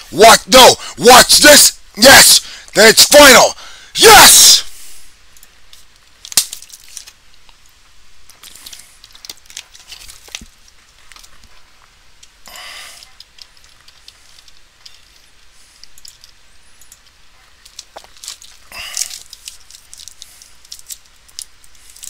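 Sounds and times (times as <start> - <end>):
breathy hiss: 2.4 - 2.8, 3.5 - 5.2, 12.4 - 17.6, 18.5 - 20.7.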